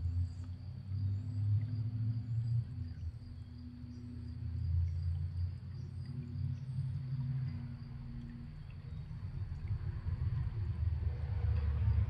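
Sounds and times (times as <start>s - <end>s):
faint hum: 0.0s - 12.0s
steady low rumble: 0.0s - 12.0s.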